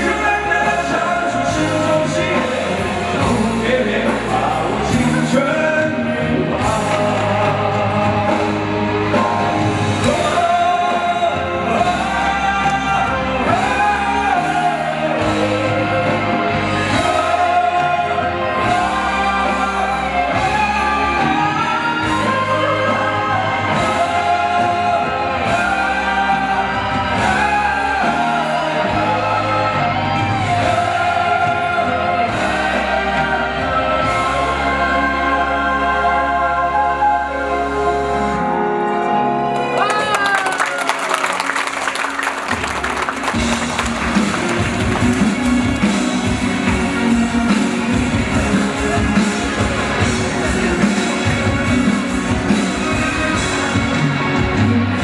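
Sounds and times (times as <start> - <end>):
man singing into microphone: 0.0 - 37.3
backing music: 0.0 - 55.0.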